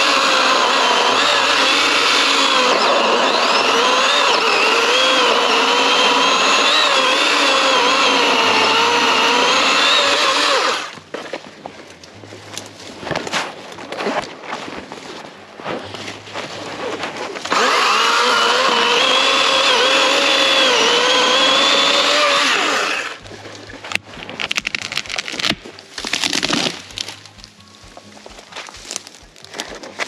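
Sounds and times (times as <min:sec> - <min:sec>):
electric chainsaw whining: 0:00.0 - 0:11.0, 0:16.8 - 0:23.2
tree cracking and snapping: 0:00.0 - 0:15.2, 0:16.8 - 0:27.5, 0:28.5 - 0:30.0.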